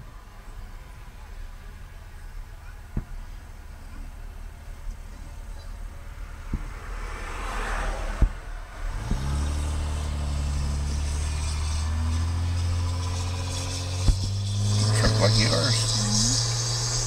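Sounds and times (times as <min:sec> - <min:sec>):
truck engine rumbling: 0:00.0 - 0:17.0
fireworks bangs: 0:11.8 - 0:17.0.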